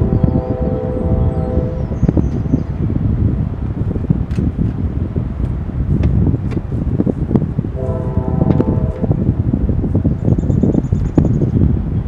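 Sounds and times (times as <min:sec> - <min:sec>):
locomotive air horn blast: 0:00.0 - 0:02.0, 0:07.8 - 0:09.4
wind buffeting microphone: 0:00.0 - 0:12.0.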